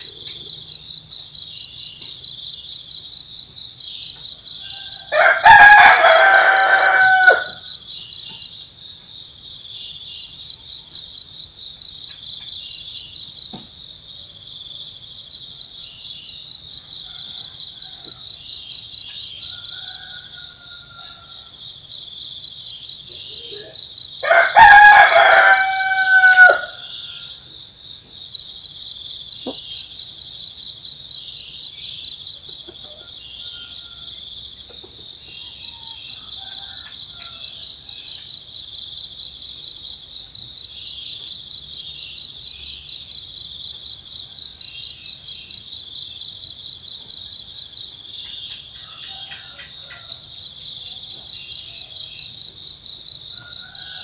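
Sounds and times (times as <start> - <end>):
crickets chirping: 0.0 - 54.0
rooster crowing: 4.6 - 7.7, 17.0 - 18.4, 19.4 - 21.6, 23.6 - 27.4, 32.9 - 34.4, 35.6 - 37.9, 48.8 - 50.4, 53.3 - 54.0.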